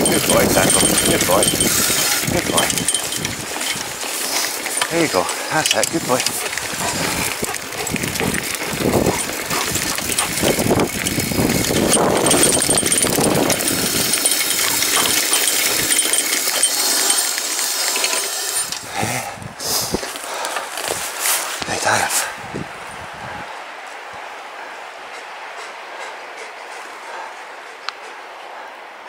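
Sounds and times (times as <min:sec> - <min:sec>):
tyres crunching over stones: 0:00.0 - 0:19.0, 0:19.9 - 0:21.7
bike rattling: 0:00.0 - 0:19.2.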